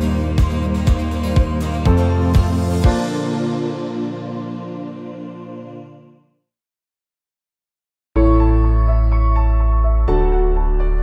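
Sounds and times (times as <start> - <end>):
calm new-age music: 0.0 - 6.4, 8.2 - 11.0.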